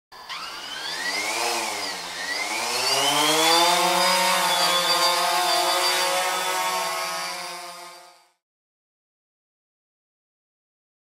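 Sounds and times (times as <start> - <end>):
drone motors whining: 0.2 - 8.4.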